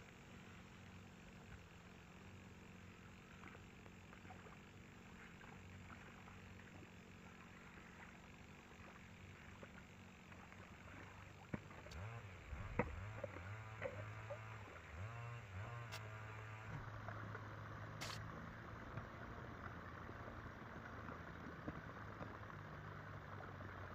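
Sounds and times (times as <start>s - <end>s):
walking tractor engine revving: 10.4s - 20.4s.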